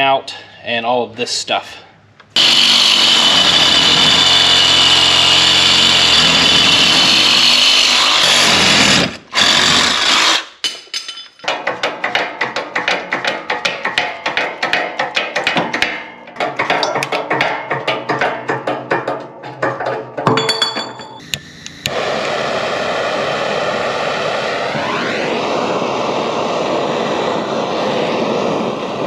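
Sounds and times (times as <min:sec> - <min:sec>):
reciprocating saw whining: 0:02.4 - 0:10.4, 0:21.4 - 0:29.0.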